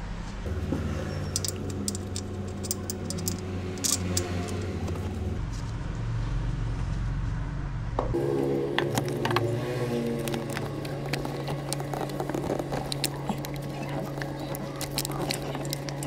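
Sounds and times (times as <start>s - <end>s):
steady low hum: 0.0s - 16.0s
metallic clicks of tools: 1.3s - 4.7s.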